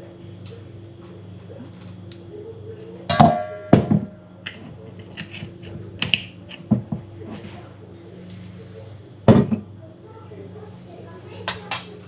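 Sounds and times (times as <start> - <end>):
steady low hum: 0.0 - 12.0
dishes clattering: 3.1 - 7.0, 9.3 - 9.7, 11.5 - 12.0.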